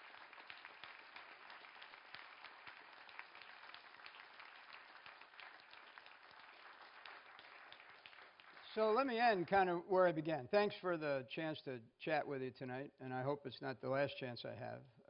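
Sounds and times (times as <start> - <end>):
faint audience applause: 0.0 - 9.7.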